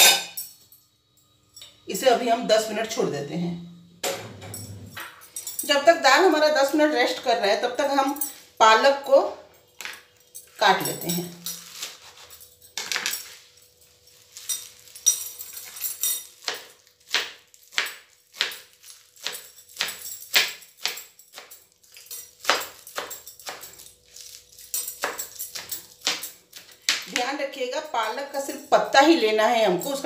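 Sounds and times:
knife chopping leaves on a board: 0:15.7 - 0:21.6, 0:22.4 - 0:27.3.

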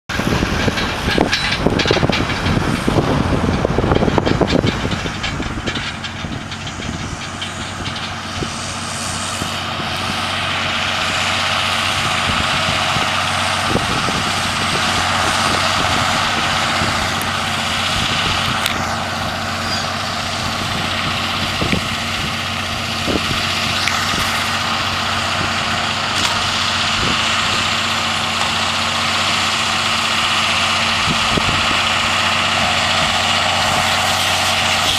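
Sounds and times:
heavy rumble: 0:00.0 - 0:34.9
tractor diesel engine running: 0:00.0 - 0:34.9.

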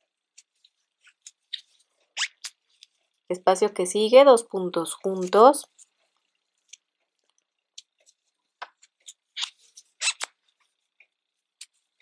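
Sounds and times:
crochet hook clicks and yarn rustles: 0:04.9 - 0:11.8.

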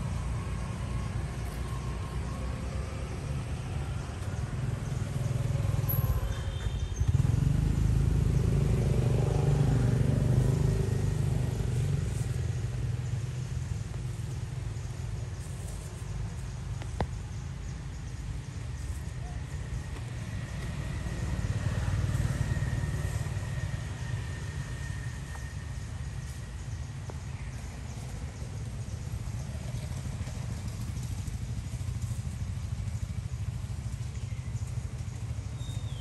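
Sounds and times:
passing vehicle engine rumble: 0:00.0 - 0:36.0.

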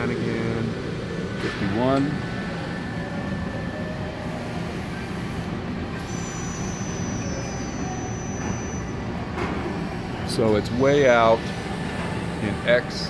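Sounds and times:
low hum and rumble of machinery: 0:00.0 - 0:13.0
faint high whine: 0:06.0 - 0:09.2.

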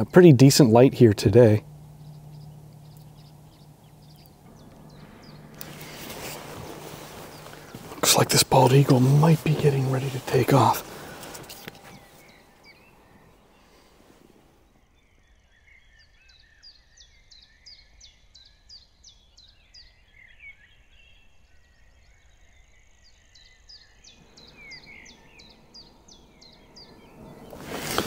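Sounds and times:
soft low bird chirps: 0:00.0 - 0:28.0
eagle whistled calls: 0:01.4 - 0:14.0, 0:24.2 - 0:28.0.

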